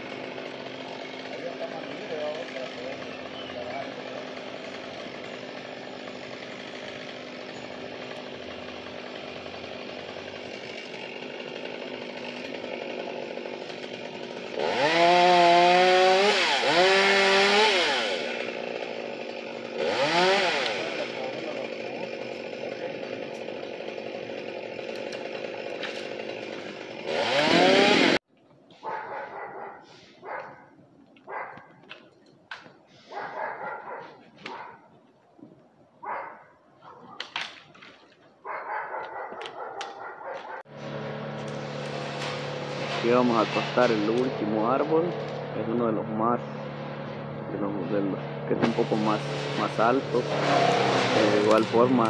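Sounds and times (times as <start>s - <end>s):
chainsaw idling and revving: 0.0s - 28.3s, 39.2s - 52.0s.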